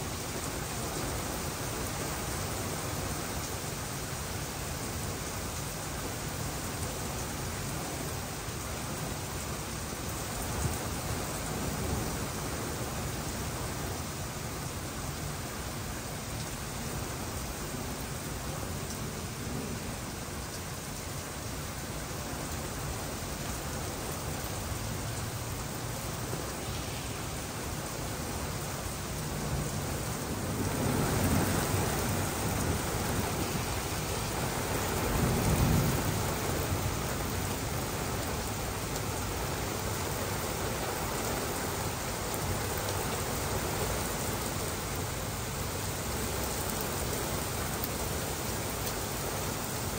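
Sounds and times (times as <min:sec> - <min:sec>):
heavy rain pouring: 0:00.0 - 0:49.9
low thunder rumbles: 0:29.2 - 0:38.2.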